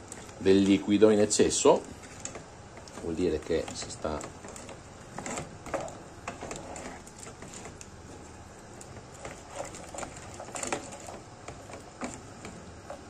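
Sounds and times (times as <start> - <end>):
sauce sputtering and popping: 1.8 - 3.0.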